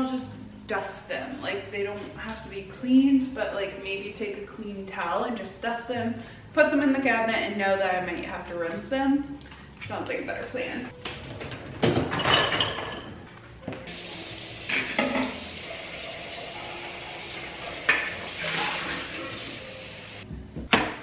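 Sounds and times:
dishes clattering: 11.4s - 13.3s, 14.7s - 15.6s, 17.8s - 18.8s
kitchen faucet running: 13.9s - 20.2s.

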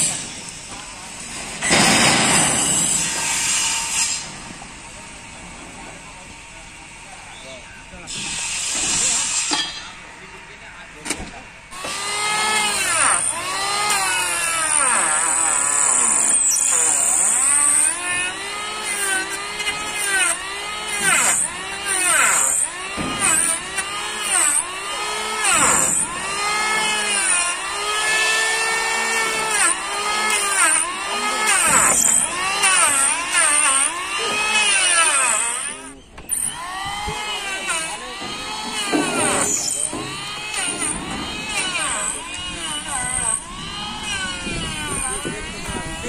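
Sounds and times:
electric hand planer shaving wood: 11.8s - 46.0s.

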